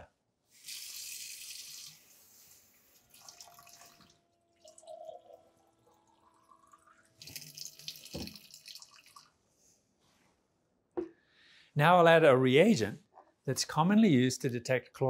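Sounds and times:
faucet water running into glass: 0.6s - 2.1s, 3.0s - 9.3s
faint rising tone: 3.7s - 7.2s
knock: 8.1s - 8.4s.

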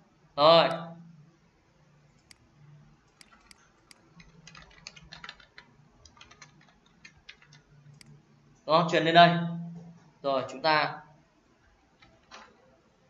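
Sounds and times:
typing on computer keyboard: 3.1s - 8.1s.

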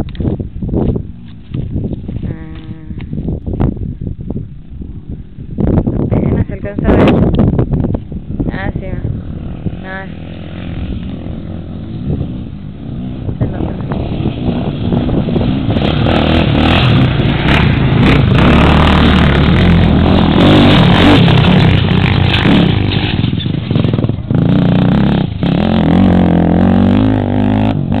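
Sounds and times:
quad engine at high revs: 9.3s - 28.0s.

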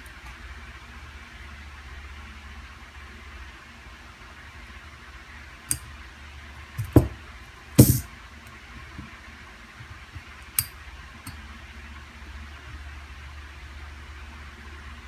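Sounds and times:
steady low hum: 0.0s - 15.0s
louder knocks: 6.8s - 7.2s, 7.8s - 8.1s.

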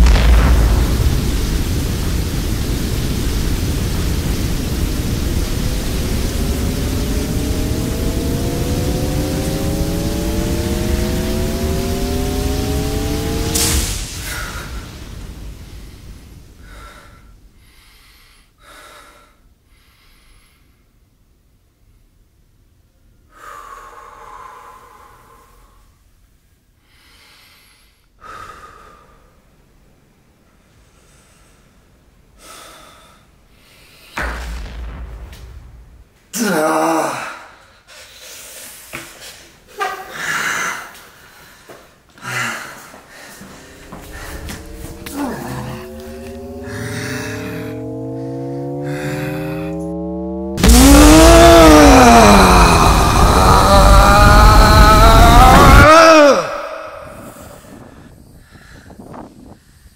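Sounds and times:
loud static rushing noise: 0.0s - 17.2s, 34.2s - 36.3s, 43.2s - 49.8s, 50.5s - 55.9s
layered rising tones: 4.0s - 16.3s, 43.3s - 55.9s
man breathing deeply: 16.6s - 21.0s, 23.3s - 25.9s, 26.8s - 29.5s, 32.4s - 34.2s, 37.3s - 45.5s, 46.4s - 49.5s, 56.0s - 59.9s.

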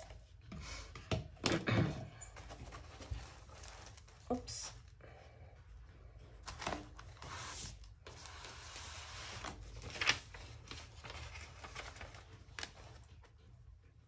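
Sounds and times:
paper rustling: 2.3s - 4.4s, 6.4s - 13.3s.

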